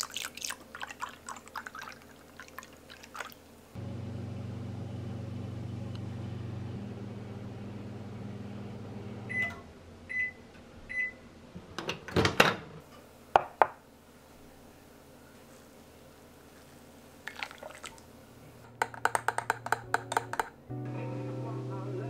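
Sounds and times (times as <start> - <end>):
microwave oven humming: 3.8 - 11.4.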